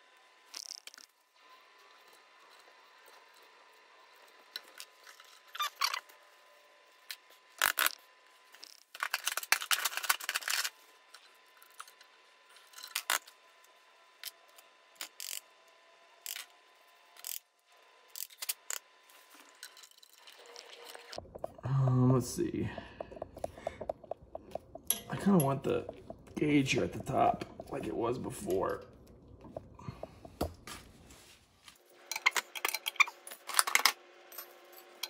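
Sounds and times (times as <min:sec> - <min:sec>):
metal fittings clicking and scraping: 0:19.4 - 0:28.8.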